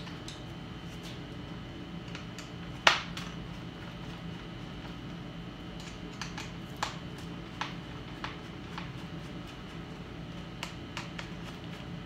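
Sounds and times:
steady low hum: 0:00.0 - 0:12.0
screwdriver clicks and taps: 0:05.8 - 0:07.0.

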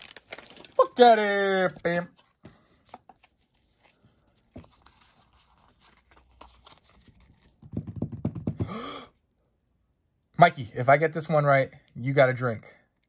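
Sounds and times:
trading cards shuffling on table: 0:01.7 - 0:08.6.

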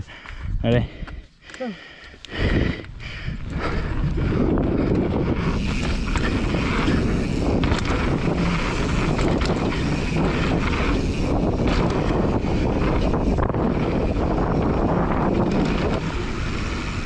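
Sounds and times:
wind rush on microphone: 0:00.0 - 0:01.2, 0:02.2 - 0:17.0
bike rattles and clicks: 0:00.1 - 0:17.0
tyres rolling on dirt: 0:03.6 - 0:17.0.

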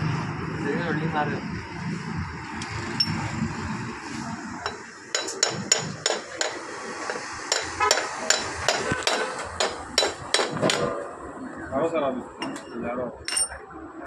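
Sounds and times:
metal striking metal: 0:04.7 - 0:10.9.

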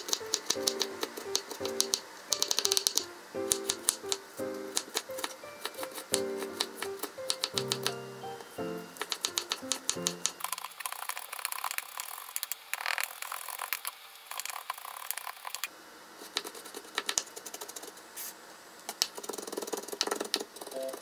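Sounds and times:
knife chopping on cutting board: 0:03.6 - 0:07.8.

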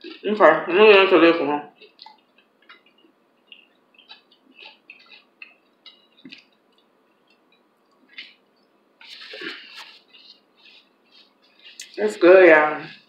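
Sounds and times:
chewing and mouth clicks: 0:01.8 - 0:12.0.

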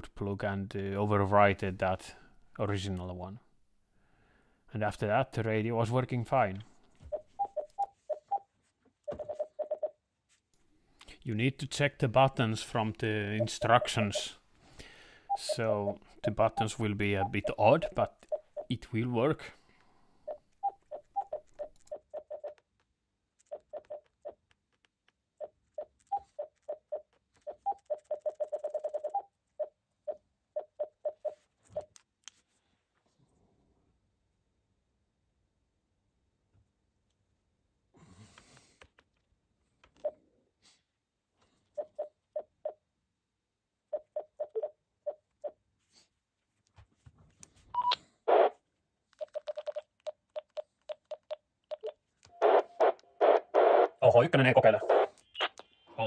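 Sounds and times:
radio key beeps: 0:15.3 - 0:18.7, 0:51.7 - 0:56.0.

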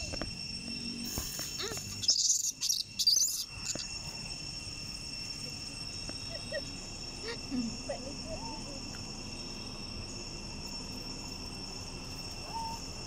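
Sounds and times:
insects droning: 0:00.0 - 0:13.0
high-pitched chirping: 0:01.5 - 0:03.9.

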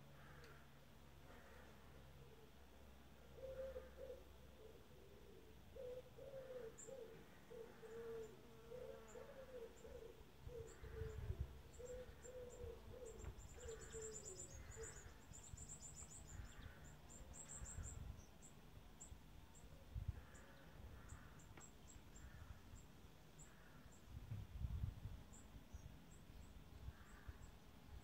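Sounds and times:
dove cooing: 0:03.3 - 0:15.1
small bird chirping: 0:09.7 - 0:19.7.

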